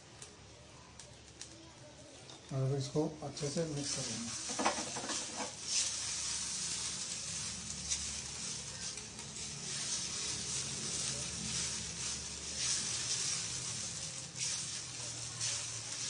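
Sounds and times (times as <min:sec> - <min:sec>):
tapioca pearls sizzling in a pan: 0:00.0 - 0:16.0
wooden spatula stirring: 0:03.4 - 0:16.0.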